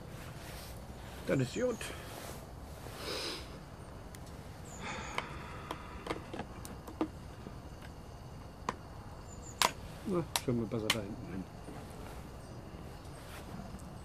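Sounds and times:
man sniffing: 3.0s - 3.6s
sharp clicks: 9.6s - 11.1s.

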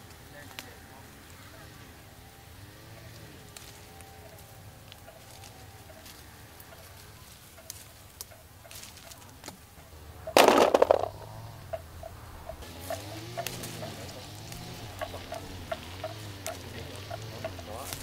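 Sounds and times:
plums clattering into basket: 10.3s - 11.4s
plums snapping off branches: 13.4s - 13.8s, 14.4s - 14.8s.

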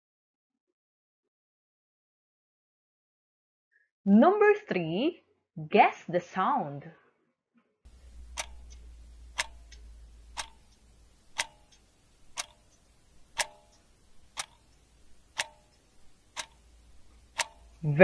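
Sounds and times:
clock ticking: 7.9s - 18.0s.

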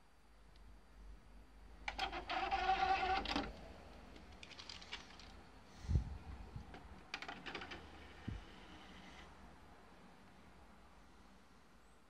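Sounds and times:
disc tray motor whirring: 1.9s - 3.5s.

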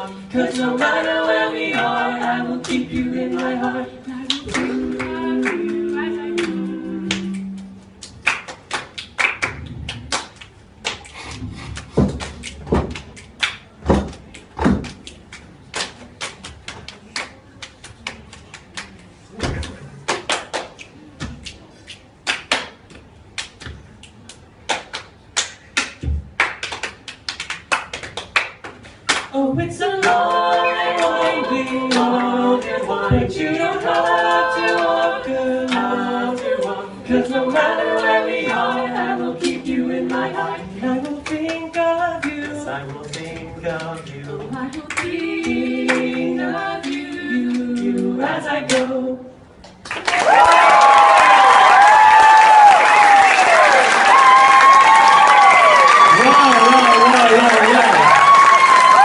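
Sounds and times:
a cappella group singing: 0.0s - 8.2s, 29.2s - 49.6s
people clapping rhythm: 0.0s - 59.0s.

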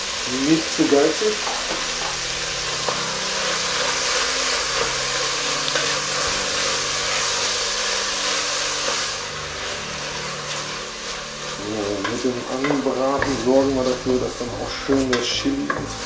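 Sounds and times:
meat sizzling in hot oil: 0.0s - 16.0s
wooden spatula stirring: 2.7s - 16.0s.

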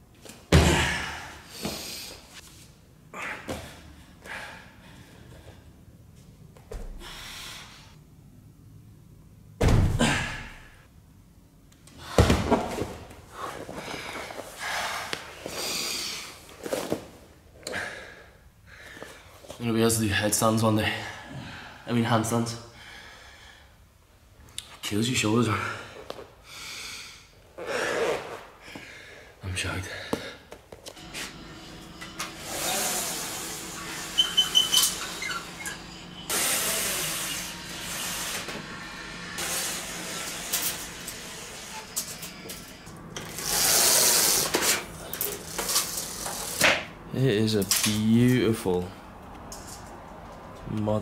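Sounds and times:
man breathing heavily: 0.6s - 2.4s, 3.1s - 5.9s, 6.9s - 8.0s, 13.3s - 16.4s, 17.6s - 19.5s, 20.8s - 21.9s, 22.7s - 23.9s, 25.5s - 30.5s
body thudding onto mat: 9.6s - 10.2s
low hum: 31.0s - 43.5s
window blind raised with hiss: 31.0s - 46.7s.

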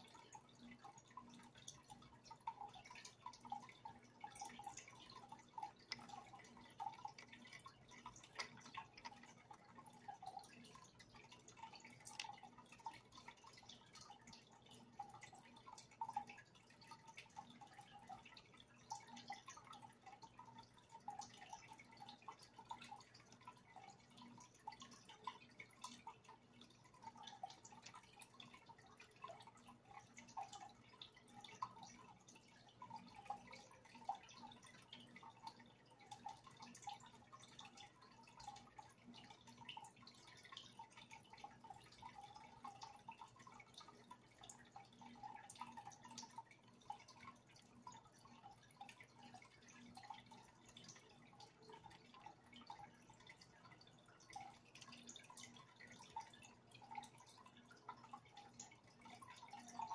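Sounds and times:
water dripping and bubbling: 0.0s - 59.9s.

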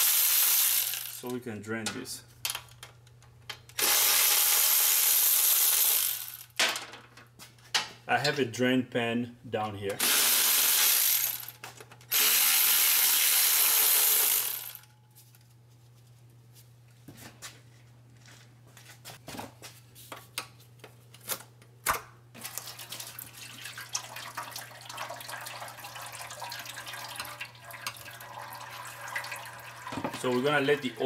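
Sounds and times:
power tool spinning bolt: 0.0s - 1.3s, 3.8s - 6.5s, 10.0s - 14.9s
fluid pouring into pan: 22.5s - 30.5s.

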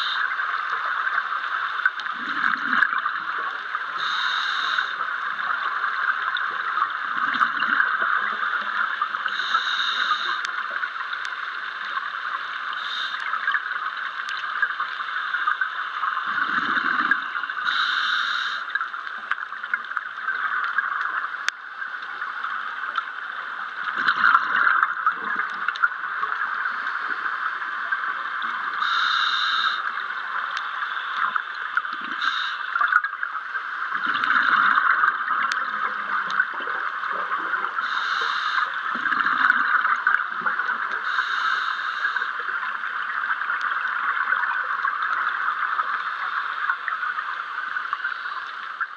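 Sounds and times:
underwater bubbling: 0.0s - 48.9s
diver breathing through regulator: 16.4s - 18.7s, 28.8s - 29.9s, 37.8s - 38.8s, 41.0s - 42.4s.

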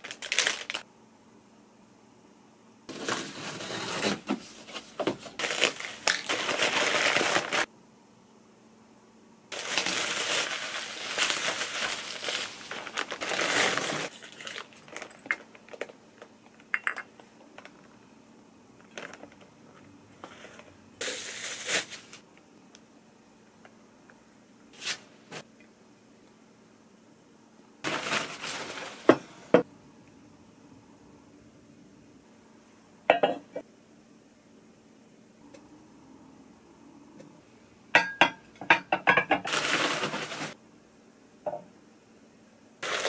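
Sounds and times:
bubble wrap and paper crinkling: 0.0s - 0.8s, 2.9s - 7.7s, 9.5s - 16.6s, 18.8s - 19.5s, 20.2s - 22.2s, 27.8s - 29.2s, 39.4s - 40.6s
dishware clicking and tapping: 33.1s - 33.6s, 38.0s - 39.5s.

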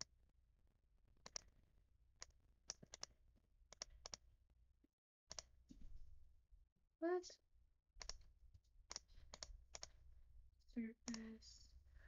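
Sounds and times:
computer mouse clicks: 1.2s - 1.6s, 2.2s - 4.2s, 5.3s - 5.6s, 8.0s - 8.3s, 8.9s - 10.0s, 11.0s - 11.3s.

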